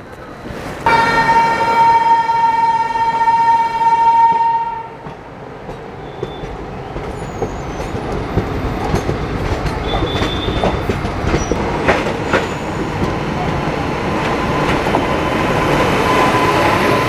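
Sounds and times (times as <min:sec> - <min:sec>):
locomotive horn: 0:00.9 - 0:05.0
train wheels clicking over rail joints: 0:05.0 - 0:13.6
high wheel squeals: 0:06.0 - 0:08.1, 0:09.8 - 0:10.8.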